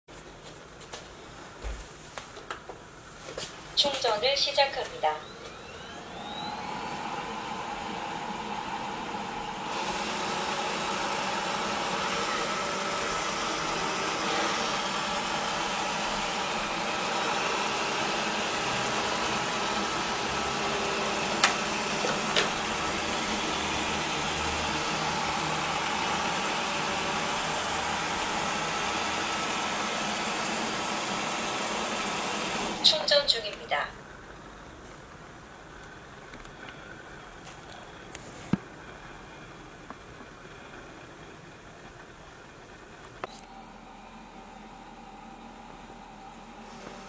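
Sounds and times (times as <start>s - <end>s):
robot vacuum whirring: 3.8s - 33.8s, 43.0s - 47.0s.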